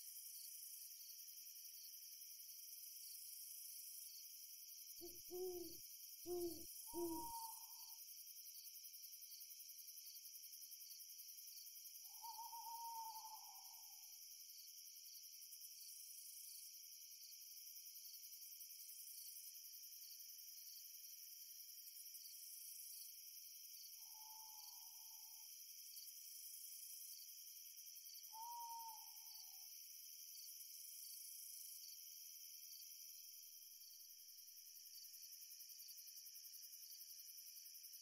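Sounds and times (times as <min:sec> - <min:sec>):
crickets chirping: 0:00.0 - 0:38.0
owl hooting: 0:05.0 - 0:07.9, 0:12.2 - 0:13.6, 0:28.4 - 0:29.3.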